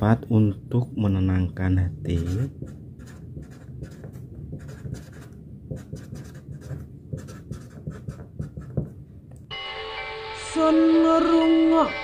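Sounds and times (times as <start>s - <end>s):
marker scratching on paper: 2.1s - 9.0s.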